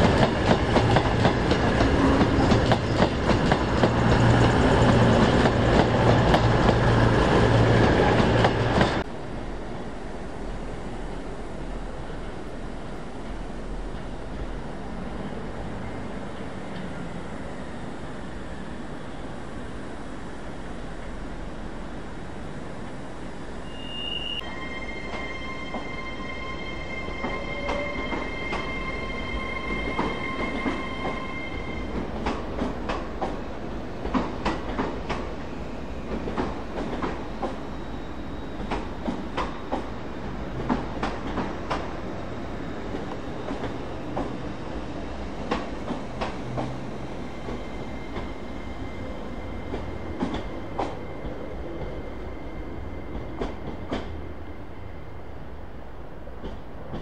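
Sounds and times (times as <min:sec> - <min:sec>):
low train rumble: 0:00.0 - 0:57.0
high wheel squeal: 0:23.6 - 0:32.1.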